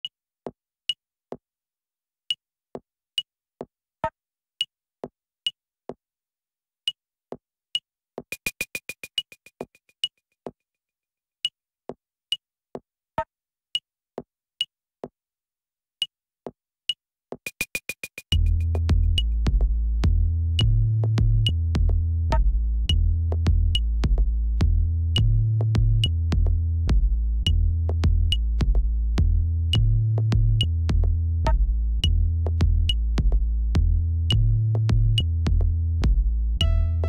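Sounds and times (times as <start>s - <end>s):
electronic percussion ticks and knocks: 8.3s - 9.7s, 17.5s - 19.8s.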